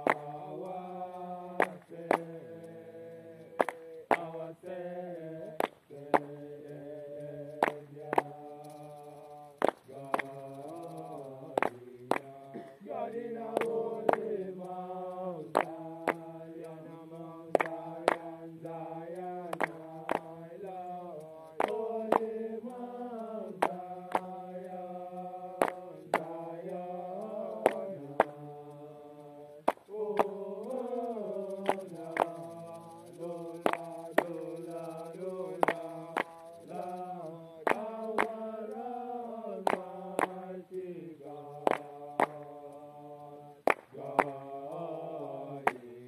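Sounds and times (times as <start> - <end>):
voices chanting: 0.0 - 46.0.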